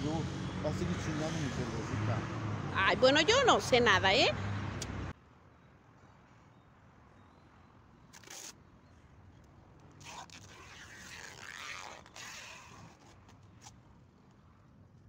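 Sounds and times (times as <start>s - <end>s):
packing tape ripping off roll: 8.1s - 8.5s, 10.0s - 13.7s.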